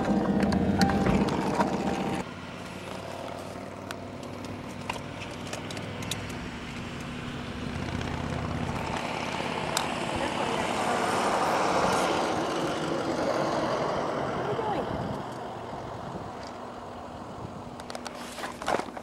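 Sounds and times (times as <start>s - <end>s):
car engine idling: 0.0s - 14.8s.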